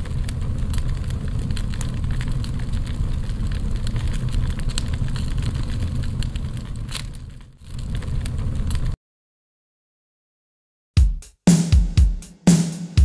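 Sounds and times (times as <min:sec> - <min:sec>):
fire crackling: 0:00.0 - 0:09.0
fire low rumble: 0:00.0 - 0:09.0.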